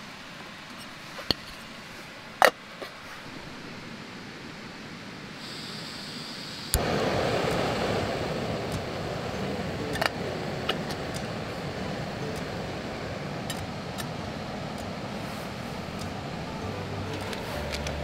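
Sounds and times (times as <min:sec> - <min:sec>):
burner flame noise: 0:00.0 - 0:18.0
gas hissing: 0:04.8 - 0:18.0
stove igniter click: 0:06.7 - 0:09.0, 0:09.8 - 0:11.4.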